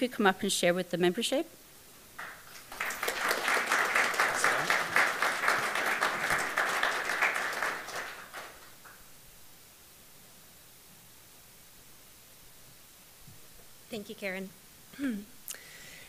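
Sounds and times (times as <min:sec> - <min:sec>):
audience applauding: 0:02.2 - 0:09.0.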